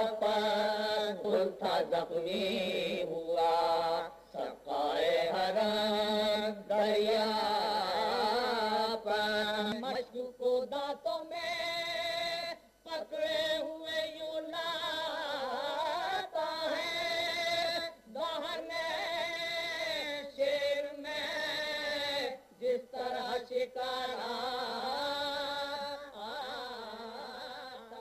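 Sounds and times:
person chanting: 0.0s - 28.0s.

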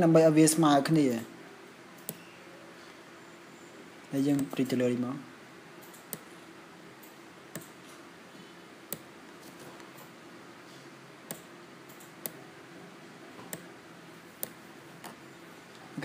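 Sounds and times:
faint steady hum: 0.0s - 16.0s
computer mouse clicking: 2.0s - 2.3s, 5.8s - 6.3s, 7.0s - 7.8s, 8.9s - 10.1s, 11.3s - 12.4s, 13.4s - 13.7s.

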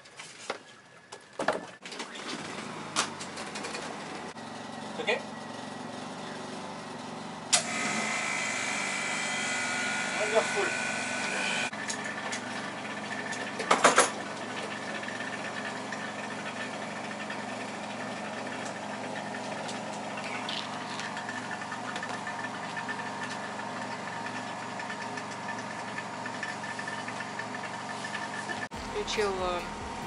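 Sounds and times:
vacuum pump running: 2.4s - 30.0s
clatter of sharp knocks: 13.6s - 14.2s.

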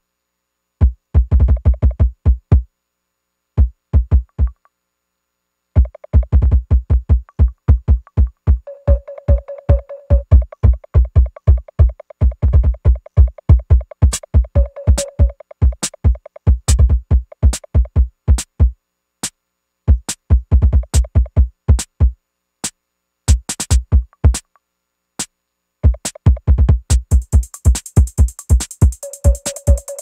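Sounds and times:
drum machine kick drum: 0.8s - 2.7s, 3.6s - 4.6s, 5.8s - 18.8s, 19.9s - 22.2s, 23.3s - 24.4s, 25.8s - 30.0s
hissing hi-hat: 13.0s - 17.8s, 22.6s - 24.5s, 26.0s - 30.0s.

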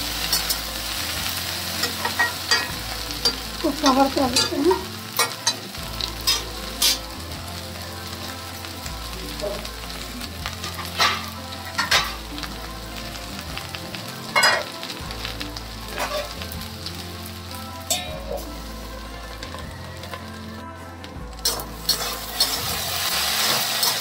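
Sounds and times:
okra sizzling in oil: 0.0s - 24.0s
metal lid clinking on pan: 14.4s - 14.7s.

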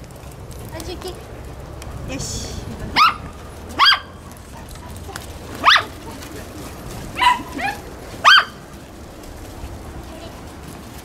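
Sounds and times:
dog barking high-pitched: 2.9s - 4.2s, 5.6s - 6.0s, 7.2s - 8.6s.

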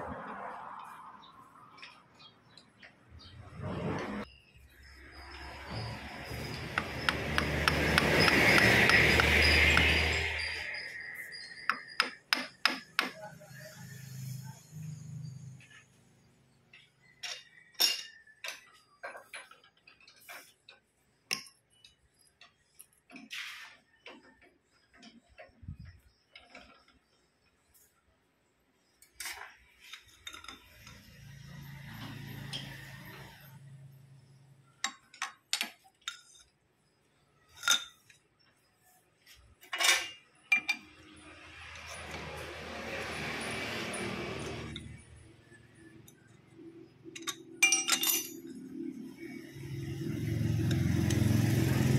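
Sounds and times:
metal tools clinking on chuck: 16.7s - 23.6s, 29.0s - 33.5s, 34.8s - 36.6s, 37.4s - 38.2s, 39.3s - 43.2s, 45.8s - 49.0s
sharp metal clicks and knocks: 34.8s - 36.6s
ringing metal clatter: 47.1s - 48.8s.

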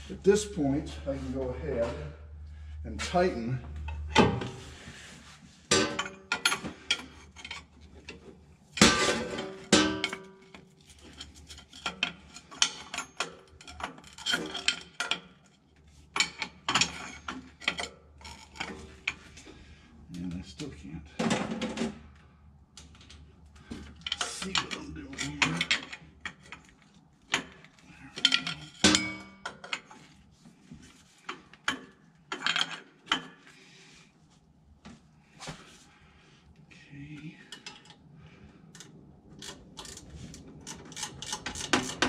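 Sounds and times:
tool clinking on metal: 24.0s - 26.7s, 27.4s - 30.0s.

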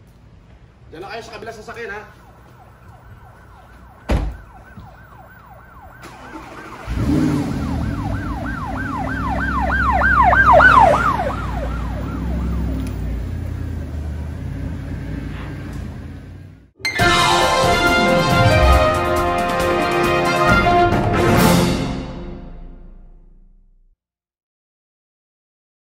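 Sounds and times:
siren sweeping up and down: 2.1s - 12.9s, 16.9s - 20.7s
car door thudding shut: 4.1s - 4.5s
car engine starting and running: 5.6s - 20.4s.

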